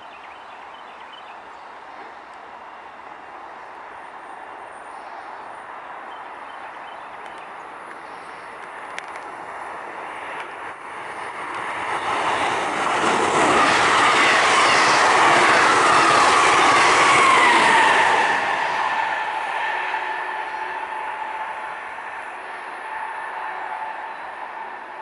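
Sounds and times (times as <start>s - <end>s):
train wheels on rails: 7.2s - 25.0s.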